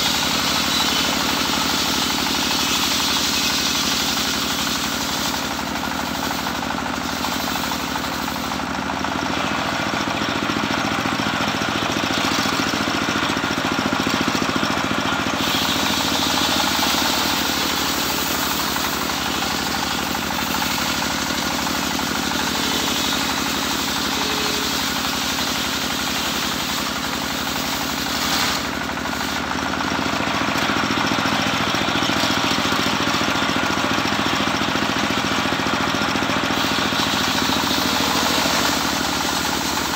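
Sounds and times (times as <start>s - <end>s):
sawmill engine running: 0.0s - 39.9s
circular saw blade ripping log: 27.4s - 29.5s.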